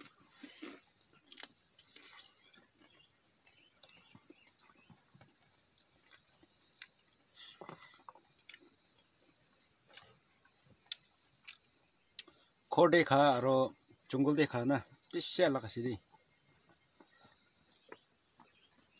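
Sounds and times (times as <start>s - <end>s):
people eating with hands: 0.0s - 12.6s
insect trilling: 0.0s - 18.9s.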